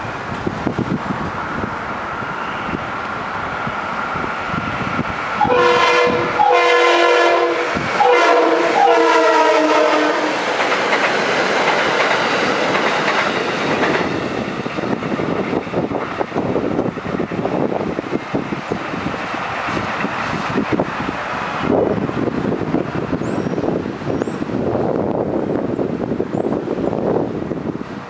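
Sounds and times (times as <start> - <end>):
train wheels rumbling and clacking: 0.0 - 28.0
train horn blasts: 5.4 - 10.4.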